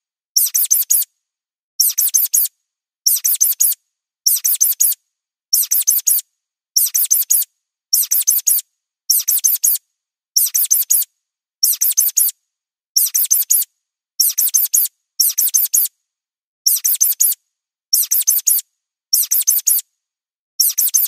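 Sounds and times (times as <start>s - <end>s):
high-pitched mouse squeaks: 0.4s - 1.1s, 1.8s - 2.5s, 3.1s - 5.0s, 5.6s - 6.2s, 6.8s - 9.8s, 10.4s - 12.4s, 13.0s - 15.9s, 16.7s - 19.9s, 20.6s - 21.0s.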